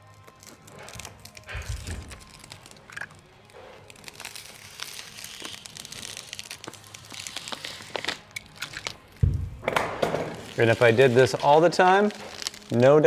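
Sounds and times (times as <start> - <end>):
tape and membrane crinkling: 0.0 - 13.0
dull thump: 9.2 - 10.3.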